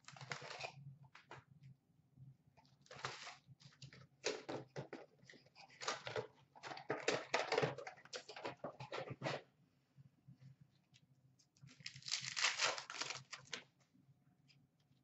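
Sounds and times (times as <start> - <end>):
card packs rustling and tapping: 0.0 - 1.4, 2.8 - 9.4.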